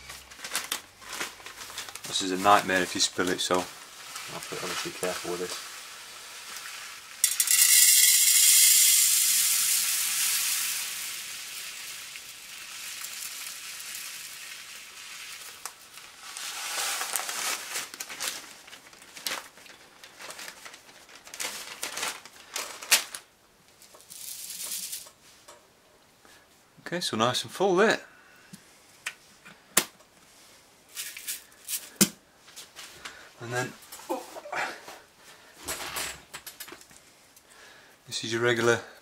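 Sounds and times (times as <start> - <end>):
plastic bag crinkling: 0.0 - 25.1
beads pouring into metal tin: 2.1 - 18.0, 24.0 - 25.1, 30.9 - 31.9.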